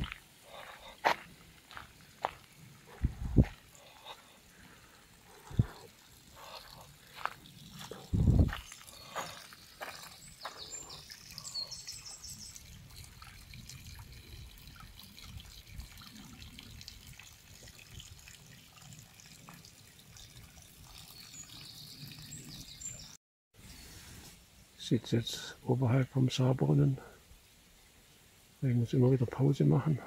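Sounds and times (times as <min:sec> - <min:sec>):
water trickling into trough: 0:00.0 - 0:23.2
birds singing: 0:06.4 - 0:12.9, 0:21.0 - 0:23.9.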